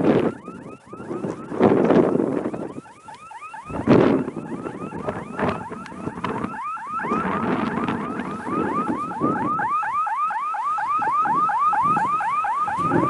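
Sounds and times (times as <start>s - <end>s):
electronic alarm rising chirp: 0.0s - 10.0s.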